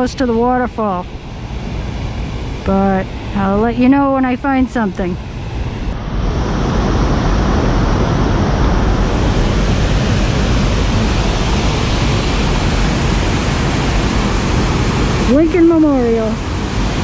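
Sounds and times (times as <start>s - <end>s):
waterfall rushing: 6.0s - 17.0s.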